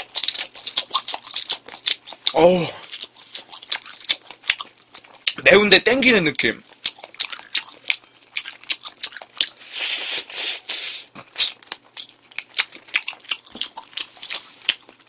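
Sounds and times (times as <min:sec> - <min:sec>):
wet chewing clicks: 0:00.0 - 0:05.4, 0:06.6 - 0:10.0, 0:11.2 - 0:15.0
hiss: 0:09.6 - 0:11.1.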